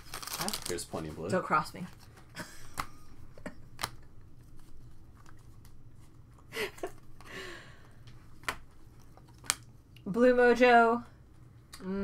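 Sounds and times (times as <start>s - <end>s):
cards rustling: 0.0s - 3.1s, 3.7s - 6.3s, 8.1s - 9.6s.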